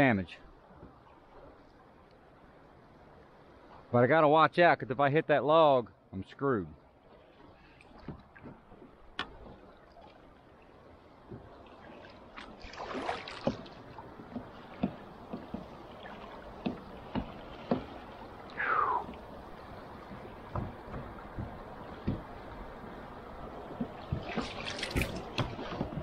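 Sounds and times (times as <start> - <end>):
paddle knocks and splashes: 0.7 - 1.6, 7.2 - 10.6, 11.2 - 26.0
running water: 6.5 - 26.0.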